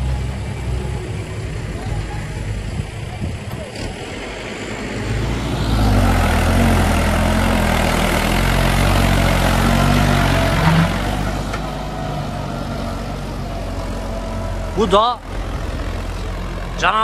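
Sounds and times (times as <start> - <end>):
tractor diesel engine: 0.0 - 17.0
heavy log skidding: 5.2 - 15.6.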